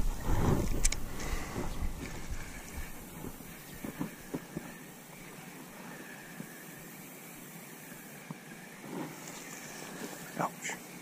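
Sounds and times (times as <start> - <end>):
wind rumbling on microphone: 0.0 - 5.0.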